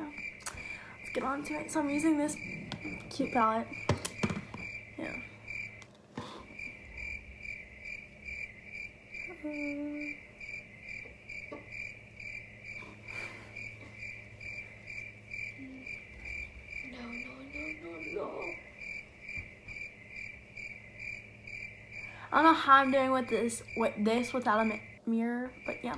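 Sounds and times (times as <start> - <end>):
cricket chirping: 0.0 - 25.9
low electrical hum: 0.0 - 25.9
person humming: 9.3 - 10.2, 15.6 - 15.9.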